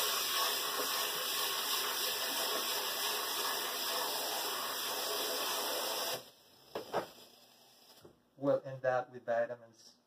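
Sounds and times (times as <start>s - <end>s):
faucet running into metal pot: 0.0s - 7.1s.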